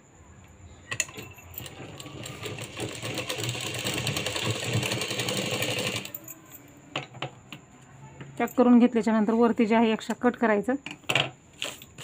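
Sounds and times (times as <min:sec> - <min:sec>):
sewing machine running: 0:01.0 - 0:06.2.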